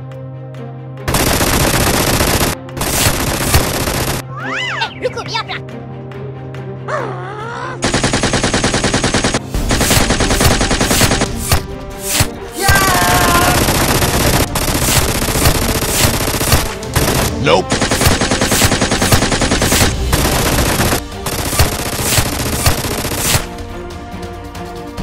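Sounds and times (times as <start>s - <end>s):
machine-gun fire bursts: 1.1s - 4.2s, 7.8s - 11.6s, 12.7s - 23.5s.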